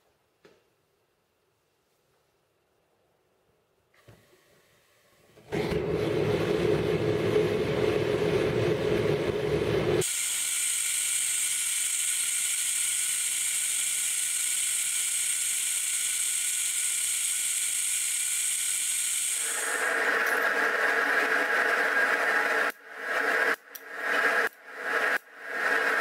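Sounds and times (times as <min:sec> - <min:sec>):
gas forge burner roaring and hissing: 0:05.5 - 0:26.0.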